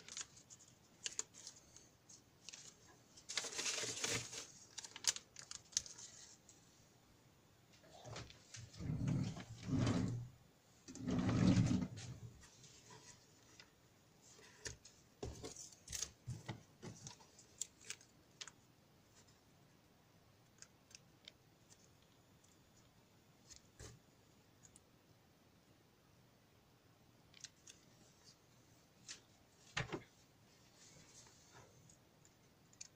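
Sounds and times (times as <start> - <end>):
rustling handling noise: 0.0 - 6.8, 7.8 - 19.4.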